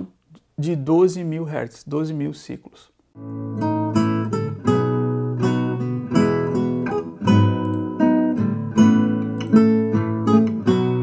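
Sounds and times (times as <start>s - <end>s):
acoustic guitar strumming chords: 3.2s - 11.0s.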